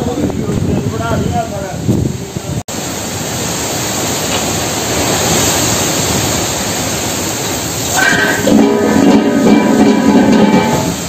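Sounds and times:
strong storm wind rushing: 0:00.0 - 0:02.7.

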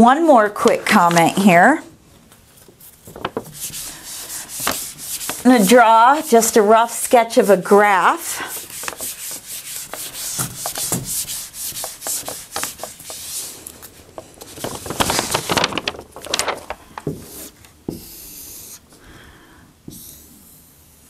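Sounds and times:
marker drawing on whiteboard: 0:03.4 - 0:13.6, 0:17.2 - 0:18.9, 0:19.9 - 0:21.0
eraser scrubbing whiteboard: 0:03.4 - 0:13.7, 0:17.2 - 0:18.9.

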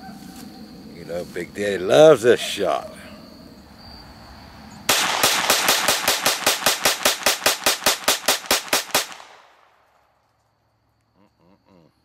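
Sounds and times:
pistol shots in rapid string: 0:04.9 - 0:09.5.

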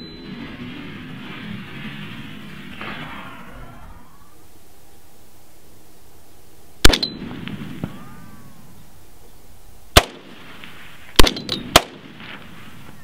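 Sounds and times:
rifle shots cracking: 0:06.8 - 0:08.1, 0:10.0 - 0:12.8.

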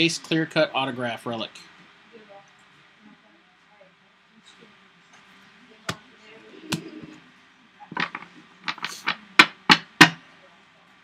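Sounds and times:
trading cards tapping and clicking: 0:07.9 - 0:10.2.

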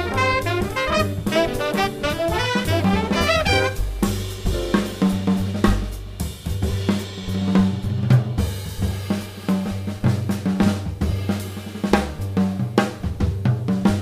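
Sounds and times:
acoustic bass line: 0:00.0 - 0:06.5
jazz band playing: 0:00.0 - 0:08.4
drum kit hits: 0:00.0 - 0:14.0.

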